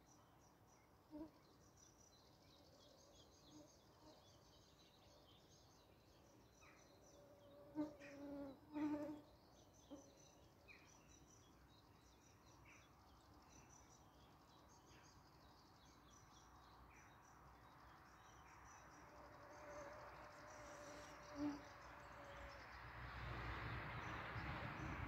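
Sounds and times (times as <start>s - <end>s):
flying insect buzzing: 19.5s - 22.4s.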